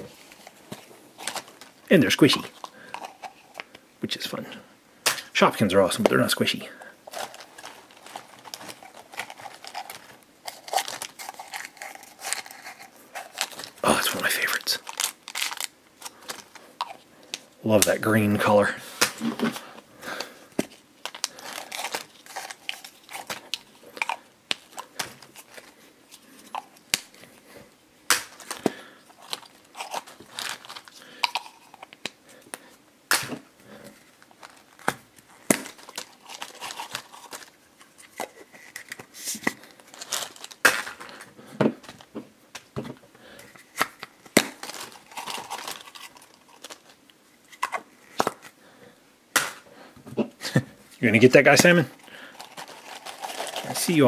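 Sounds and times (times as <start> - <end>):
cellophane crinkling: 0.0 - 3.7, 7.0 - 17.5, 19.2 - 27.4, 28.3 - 32.8, 33.7 - 42.2, 43.3 - 48.6, 51.2 - 54.0.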